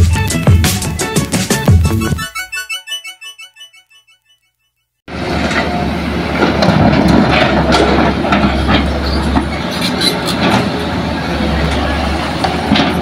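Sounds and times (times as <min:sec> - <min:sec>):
diesel engines humming: 0:05.1 - 0:13.0.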